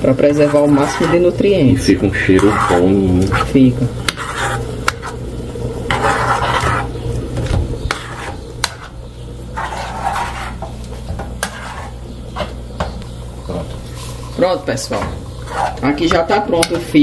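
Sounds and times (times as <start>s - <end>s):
metal spoon scraping frying pan: 0.2s - 5.2s, 5.9s - 7.0s, 7.9s - 10.7s, 11.3s - 12.5s, 15.4s - 16.4s.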